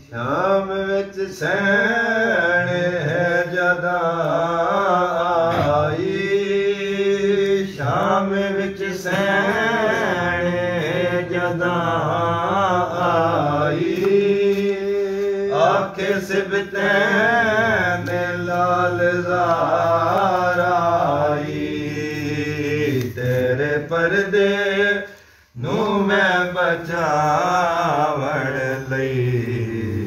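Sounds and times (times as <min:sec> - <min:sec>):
man chanting a lament: 0:00.0 - 0:30.0
short breaths: 0:25.1 - 0:25.6.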